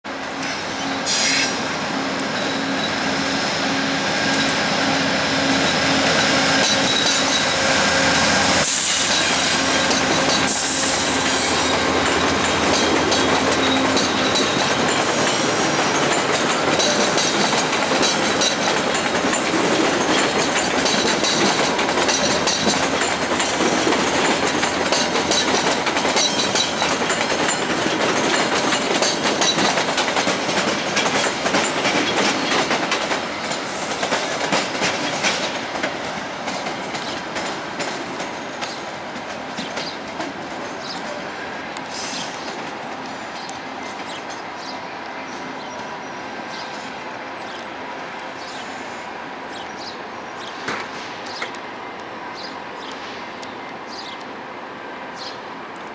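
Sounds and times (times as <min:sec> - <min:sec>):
locomotive engine hum: 0:00.1 - 0:44.6
train wheels rumbling and clicking: 0:00.1 - 0:44.9, 0:45.5 - 0:54.4.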